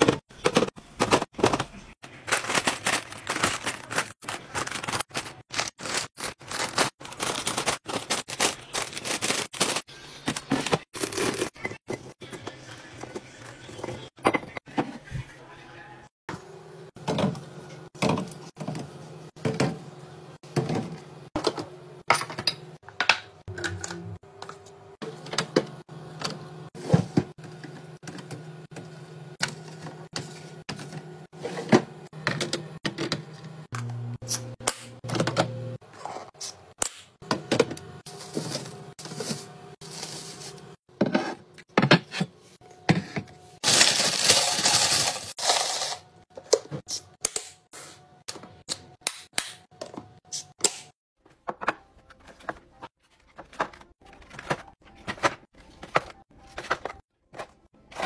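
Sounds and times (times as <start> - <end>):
potato chips poured into canister: 43.6 - 46.0.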